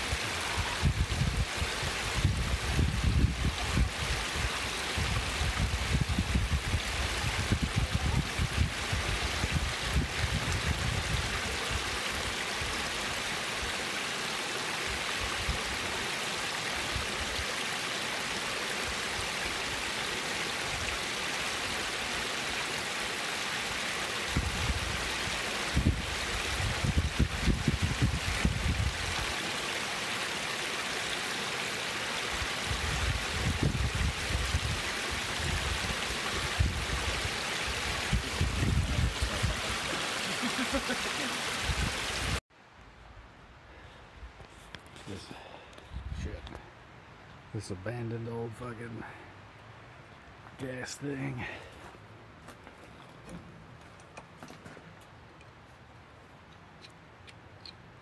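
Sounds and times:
water rushing over rock ledge: 0:00.0 - 0:42.4.

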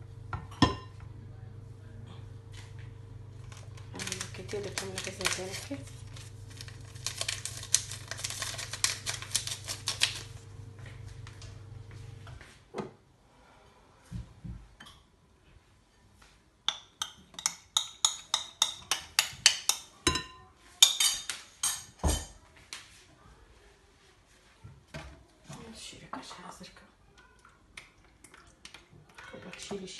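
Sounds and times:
utensils clicking on bowl: 0:03.5 - 0:10.3, 0:16.7 - 0:19.9.

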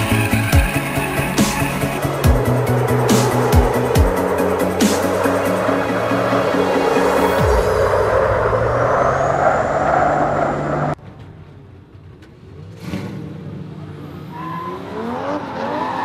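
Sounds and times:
engine revving: 0:00.0 - 0:11.0, 0:12.4 - 0:16.0
cars at full throttle: 0:00.0 - 0:16.0.

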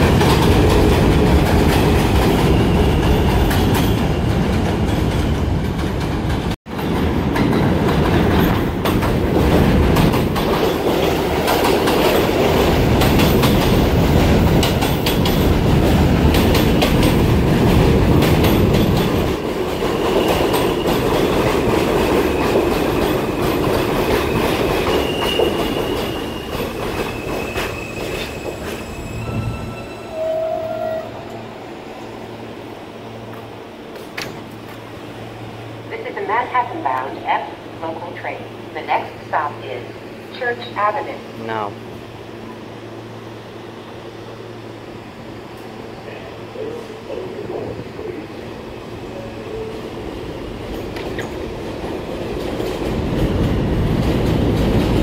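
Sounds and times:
subway train rumble: 0:00.0 - 0:55.0
faint wheel squeal: 0:27.1 - 0:31.2.

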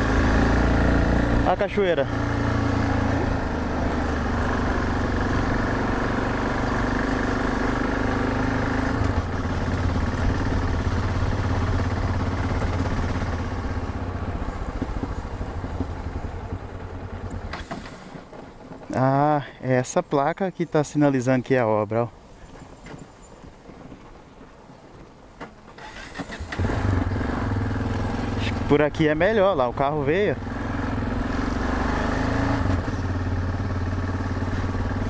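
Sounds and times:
motorcycle engine running: 0:00.0 - 0:19.2, 0:26.5 - 0:35.0.

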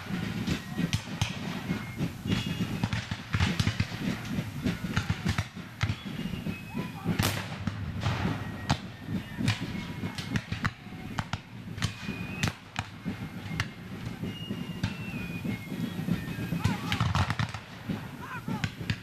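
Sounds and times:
distant gunshots crackling: 0:00.0 - 0:19.0
sharp close gunshots: 0:07.0 - 0:12.9, 0:16.6 - 0:19.0.

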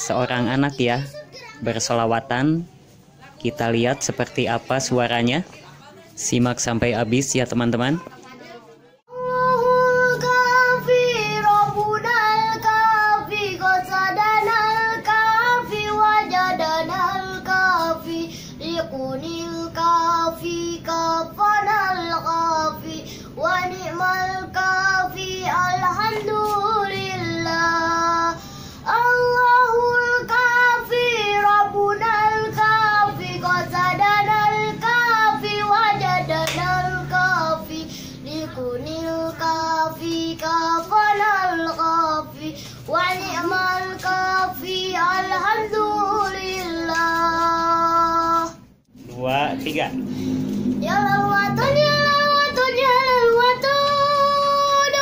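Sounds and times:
boy singing devotional song: 0:00.0 - 0:48.7, 0:50.1 - 0:55.0
singer breathing: 0:18.2 - 0:18.6, 0:23.0 - 0:23.4, 0:28.4 - 0:28.9, 0:37.8 - 0:38.3, 0:42.5 - 0:42.9, 0:50.0 - 0:50.7.

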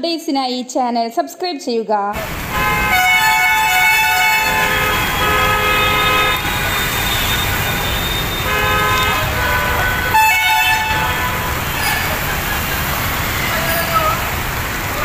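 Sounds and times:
floodwater rushing: 0:02.2 - 0:15.0
rain: 0:02.2 - 0:15.0
car horns honking: 0:02.3 - 0:14.3.

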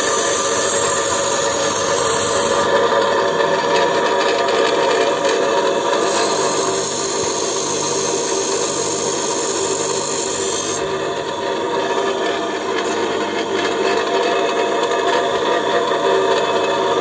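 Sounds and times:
tool bit grinding hiss: 0:00.0 - 0:02.7, 0:05.5 - 0:10.9
bench grinder running: 0:00.0 - 0:17.0.

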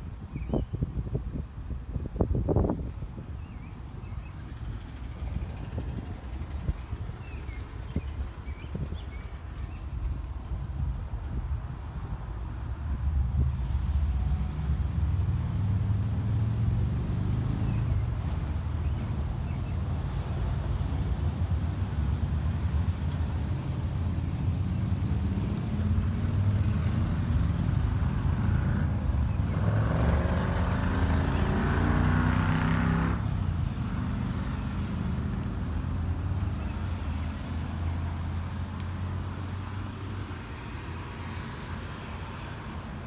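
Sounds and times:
engine rumbling: 0:00.0 - 0:43.0
higher engine sound: 0:11.8 - 0:43.0.

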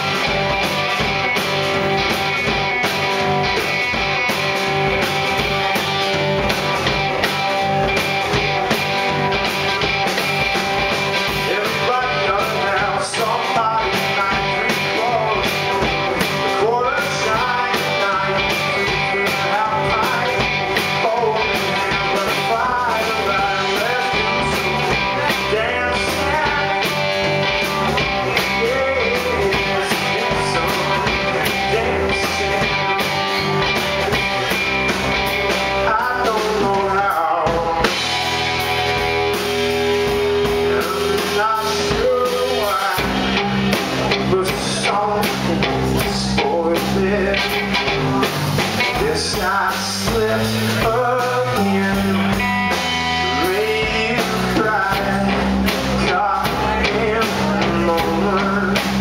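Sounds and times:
drum kit: 0:00.0 - 0:59.0
electric guitars: 0:00.0 - 0:59.0.

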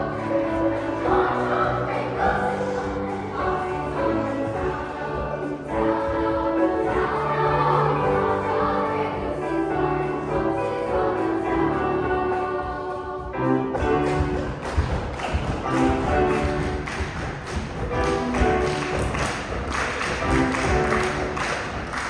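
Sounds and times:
choir singing: 0:00.0 - 0:14.6.

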